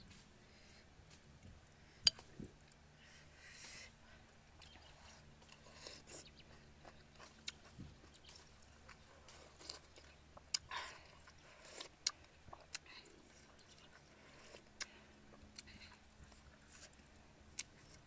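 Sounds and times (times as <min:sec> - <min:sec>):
person chewing: 0:04.6 - 0:18.0.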